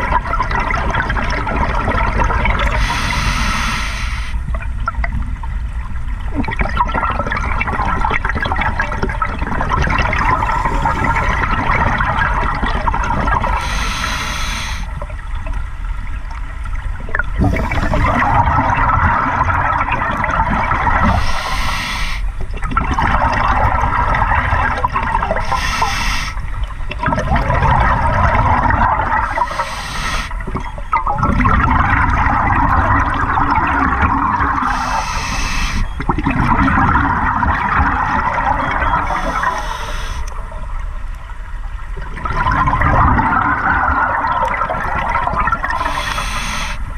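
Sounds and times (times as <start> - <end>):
exhaled bubbles underwater: 0.0 - 46.9
regulator inhalation hiss: 2.7 - 4.4, 13.5 - 14.9, 21.0 - 22.3, 25.4 - 26.4, 29.3 - 30.4, 34.6 - 35.9, 39.0 - 40.3, 45.8 - 46.9.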